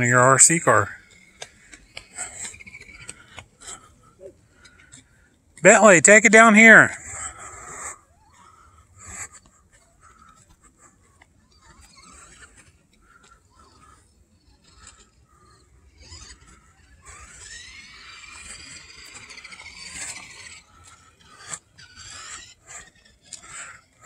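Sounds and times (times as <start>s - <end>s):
toy car electric motor whining: 11.4s - 24.0s.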